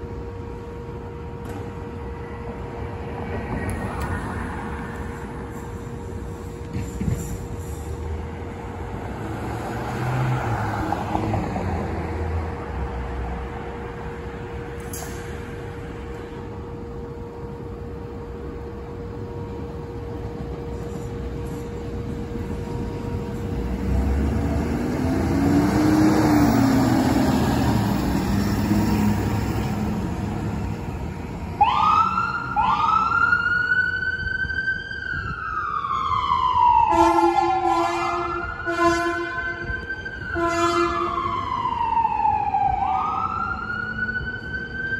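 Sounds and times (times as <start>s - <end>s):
vehicle engine and tyre noise: 0.0s - 44.9s
ambulance siren wailing: 31.5s - 44.9s
horn blasts: 36.9s - 39.6s, 40.4s - 41.1s.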